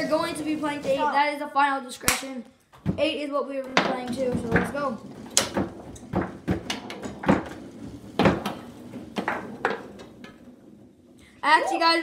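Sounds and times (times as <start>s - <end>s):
foosball knocks and clacks: 3.6s - 11.2s.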